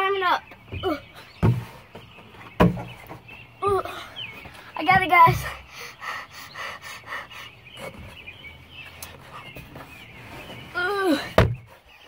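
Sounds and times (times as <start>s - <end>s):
rustling: 7.8s - 12.0s.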